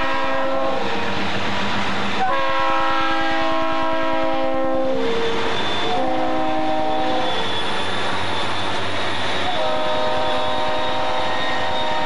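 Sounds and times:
locomotive air horn chord: 0:00.0 - 0:00.9, 0:02.2 - 0:07.7, 0:09.4 - 0:12.0
train passing: 0:00.0 - 0:12.0.

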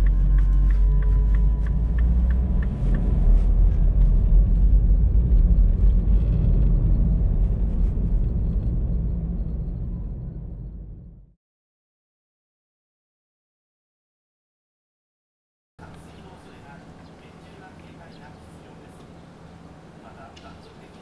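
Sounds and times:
road and engine rumble: 0:00.0 - 0:11.3, 0:15.8 - 0:21.0.

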